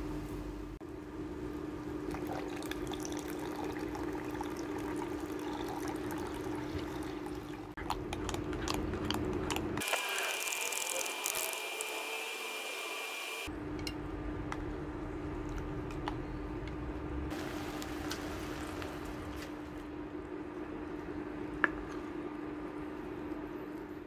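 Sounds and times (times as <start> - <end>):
induction cooker hum: 0.0 - 24.0
milk pouring into a jug: 2.1 - 7.8.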